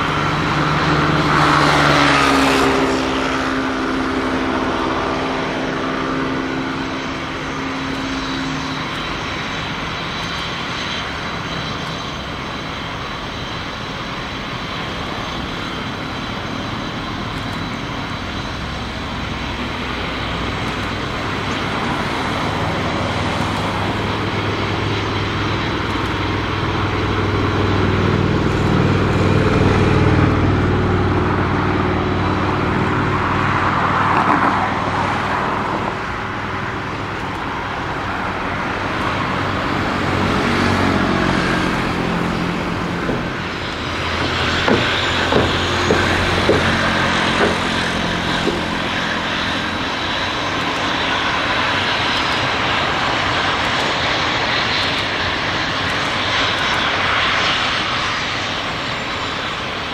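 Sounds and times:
jet engine turbine whine: 0.0s - 59.9s
sharp clicks: 25.8s - 26.2s.

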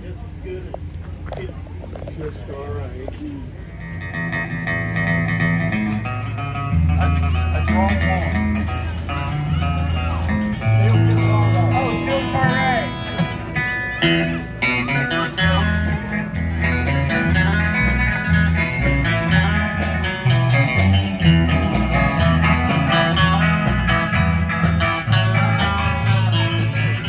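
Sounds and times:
picked guitar: 0.3s - 27.0s
live band through pa speakers: 0.8s - 27.0s
bass line: 3.4s - 27.0s.

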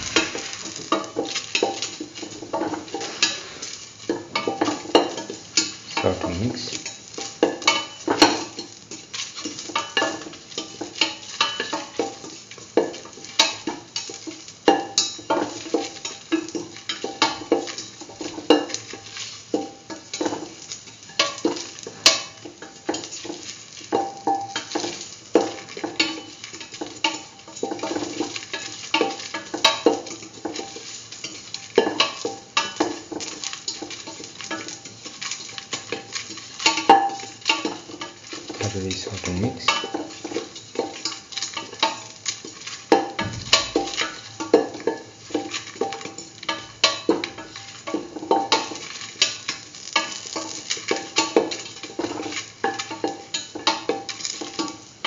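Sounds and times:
utensil scraping steel pan: 0.0s - 1.1s, 2.6s - 3.9s
faint sizzle: 0.0s - 55.0s.

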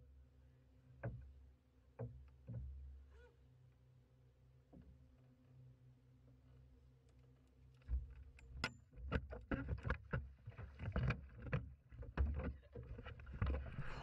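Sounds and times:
low rumble: 13.5s - 14.0s.

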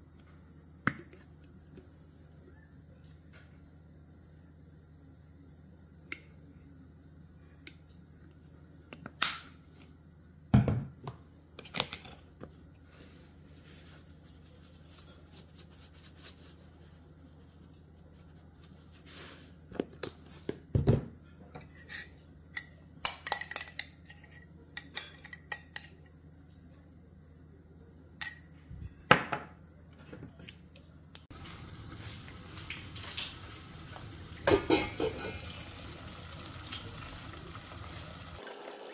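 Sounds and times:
kitchenware clinking on ceramic dish: 21.6s - 25.9s
boiling water hissing and bubbling: 31.3s - 38.9s.

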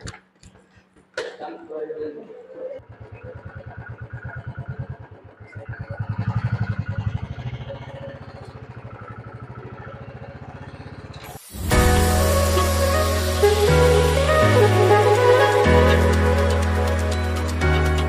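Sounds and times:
motorcycle engine revving and idling: 2.8s - 11.5s.

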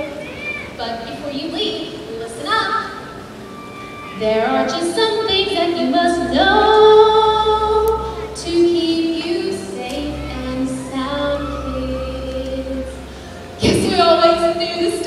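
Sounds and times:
musical accompaniment with bass: 3.1s - 15.0s.

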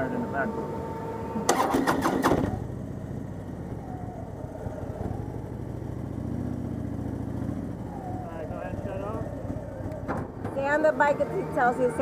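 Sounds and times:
motorcycle starter cranking: 1.5s - 2.6s
motorcycle engine idling: 1.5s - 11.0s.

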